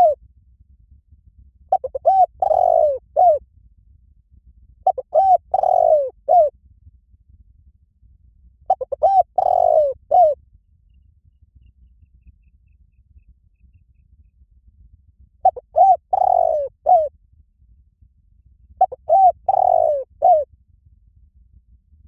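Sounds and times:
dove cooing: 0:01.7 - 0:03.4, 0:04.8 - 0:06.5, 0:08.7 - 0:10.4, 0:15.4 - 0:17.1, 0:18.8 - 0:20.5.

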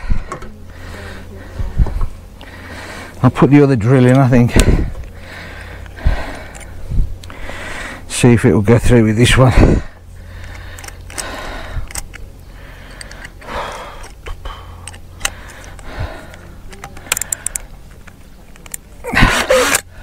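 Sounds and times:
low steady rumble: 0:00.0 - 0:20.0
power drill clicks and rattles: 0:10.4 - 0:12.2.

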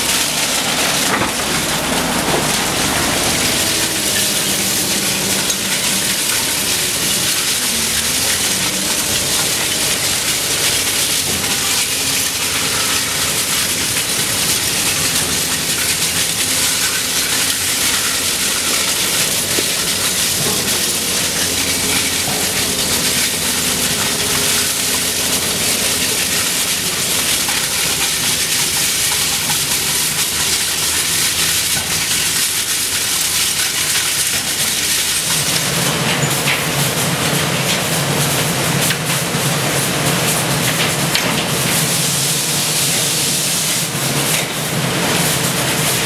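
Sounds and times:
low machine hum: 0:00.0 - 0:46.0
machinery running: 0:00.0 - 0:46.0
steel rattling on conveyor pan: 0:00.0 - 0:46.0
scrap steel clattering onto pile: 0:00.1 - 0:08.4.

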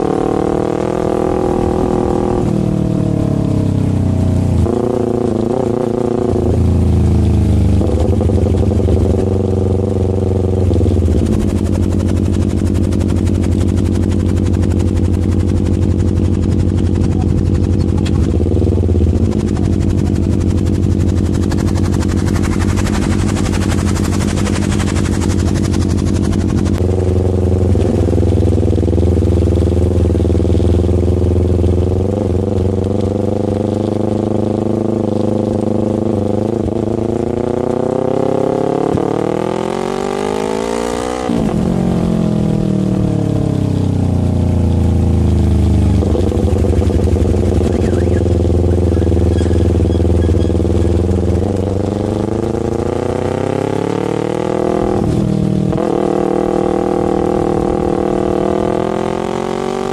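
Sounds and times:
motorcycle engine running: 0:00.0 - 0:59.9
wind rush: 0:11.0 - 0:26.8.

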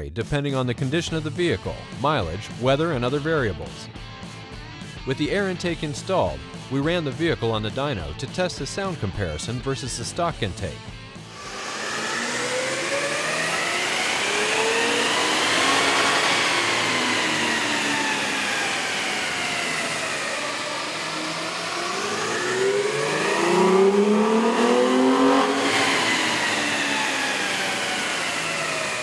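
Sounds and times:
truck engine revving under load: 0:11.2 - 0:29.0.

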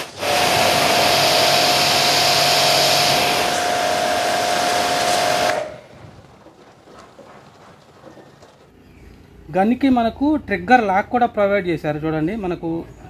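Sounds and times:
pressure washer water jet hissing: 0:00.0 - 0:06.0.

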